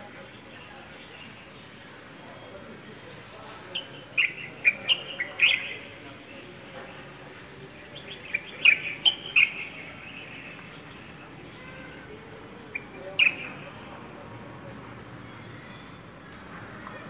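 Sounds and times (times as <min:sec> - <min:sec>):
small birds chirping: 0:00.1 - 0:06.4, 0:07.8 - 0:12.0, 0:12.6 - 0:13.8.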